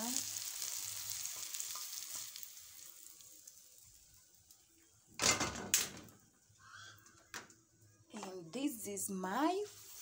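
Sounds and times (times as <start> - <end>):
hot oil sizzling: 0.0 - 7.8, 8.5 - 10.0.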